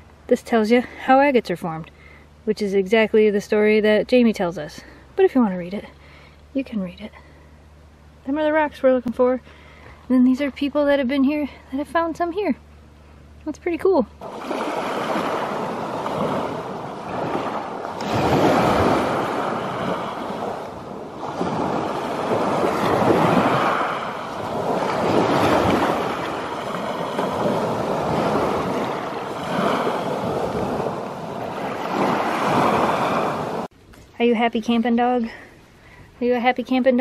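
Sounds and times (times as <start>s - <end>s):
small waves washing on cobble beach: 14.2s - 33.7s.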